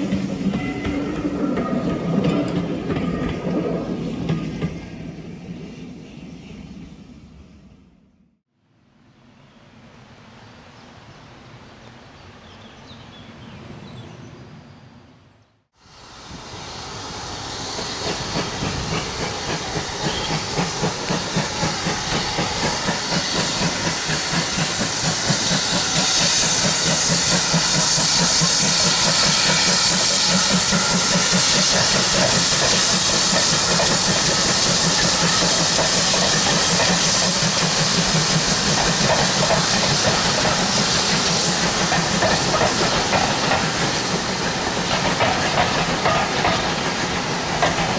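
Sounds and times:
hissing steam: 15.8s - 47.9s
steam locomotive exhaust beating: 15.8s - 47.9s.

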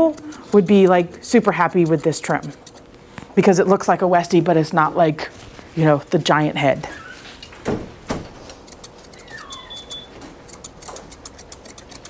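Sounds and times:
shears snipping: 0.0s - 2.9s, 8.4s - 12.0s.

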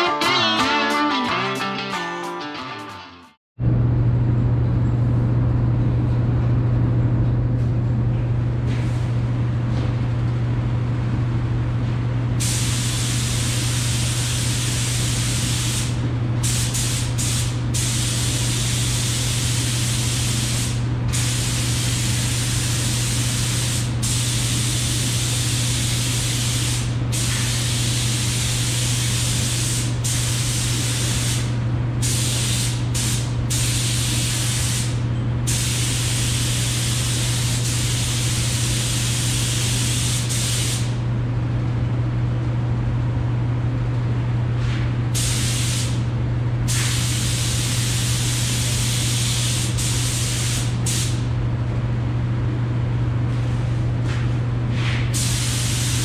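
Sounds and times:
steady low hum: 3.6s - 56.0s
spray gun hissing: 45.2s - 46.0s.

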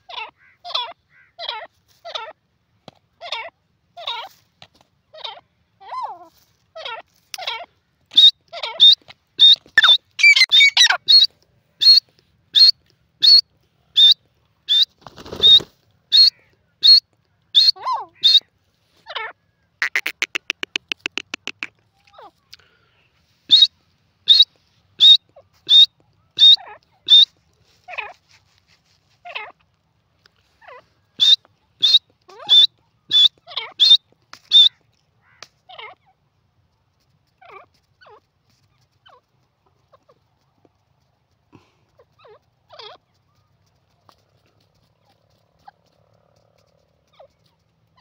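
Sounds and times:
shrill high bird calls: 8.1s - 13.4s, 14.0s - 18.5s, 23.5s - 23.7s, 24.3s - 27.3s, 30.7s - 35.4s
bird rattling trill: 19.8s - 21.7s.

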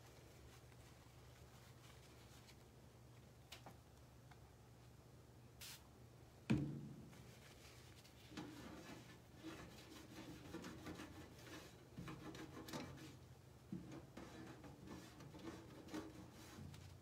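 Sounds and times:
cloth wiping painted surface: 7.1s - 13.2s.

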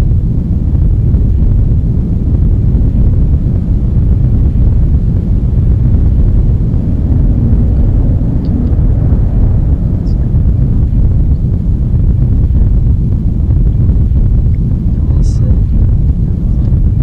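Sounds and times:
deep rumbling ambient drone: 0.0s - 17.0s.

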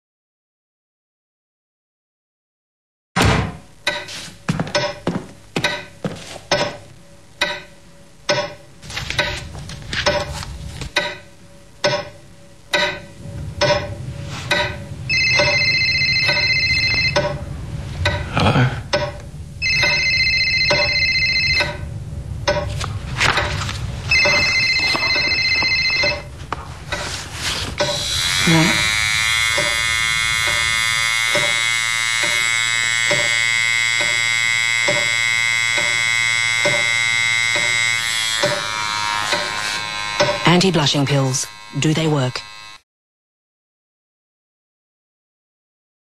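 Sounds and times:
sharp clicks and knocks: 7.4s - 14.8s, 18.0s - 18.3s, 18.9s - 20.0s, 22.4s - 23.5s
mobile phone ringing: 14.6s - 17.4s, 19.6s - 21.9s, 24.1s - 26.4s.

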